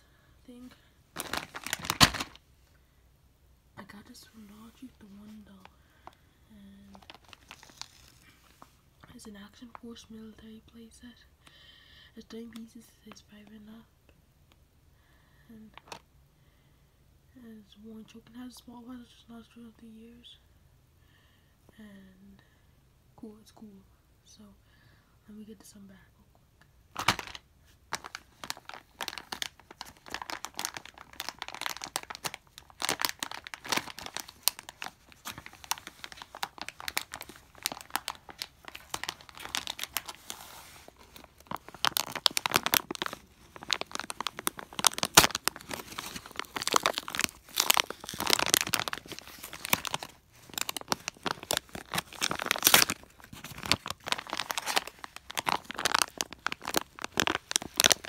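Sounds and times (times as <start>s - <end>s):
plastic bag crinkling and tearing: 0.5s - 2.4s, 6.9s - 8.7s, 26.9s - 58.0s.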